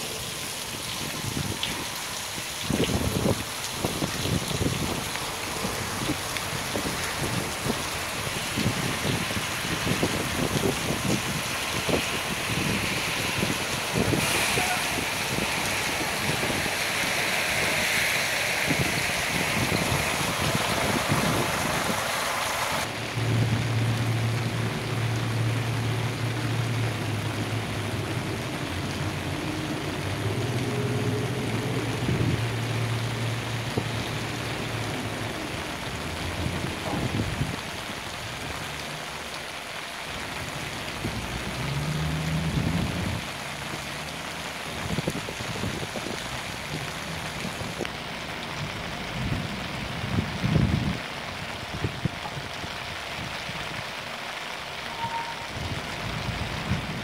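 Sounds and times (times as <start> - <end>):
steady rain hiss: 0.0 - 57.0
heavy engine drone: 14.0 - 33.3.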